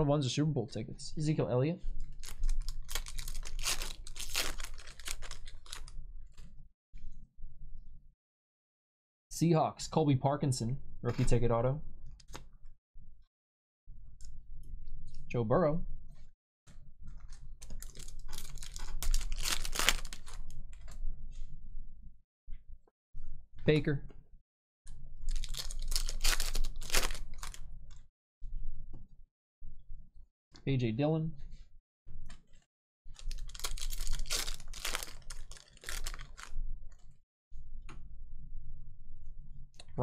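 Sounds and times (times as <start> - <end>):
foil wrappers crinkling: 2.0 - 6.0, 17.4 - 20.6, 25.3 - 27.6, 33.2 - 36.6.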